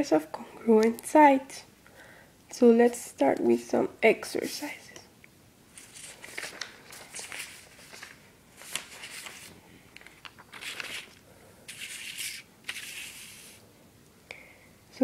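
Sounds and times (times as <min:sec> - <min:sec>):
paper sheets rustling and sliding: 0:05.8 - 0:13.6.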